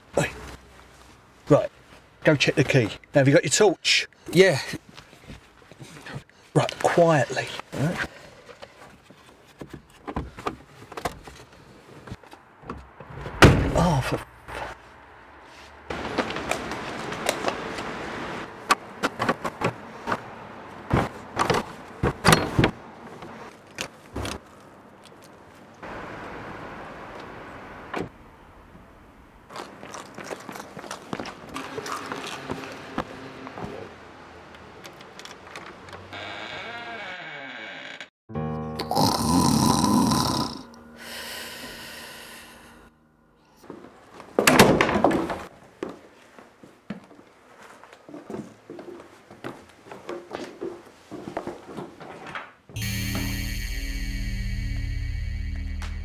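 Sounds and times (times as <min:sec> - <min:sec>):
woman snoring: 0:38.9 - 0:42.8.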